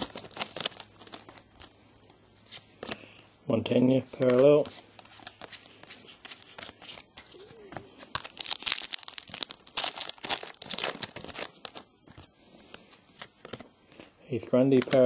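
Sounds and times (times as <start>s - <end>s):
wrapper tearing and crinkling: 0.0s - 1.8s, 5.0s - 11.9s
cards rustling: 0.0s - 3.2s, 4.0s - 13.7s, 14.6s - 15.0s.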